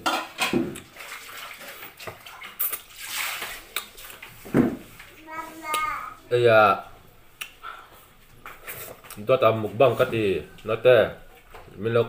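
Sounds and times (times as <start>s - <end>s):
wet chewing: 1.8s - 4.4s.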